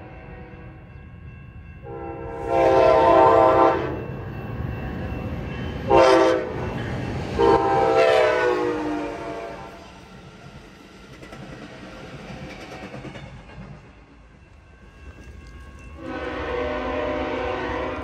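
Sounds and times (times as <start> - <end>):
train rumble: 0.0 - 18.0
train horn blasts: 1.8 - 4.1, 5.9 - 6.6, 7.4 - 9.8, 16.0 - 18.0.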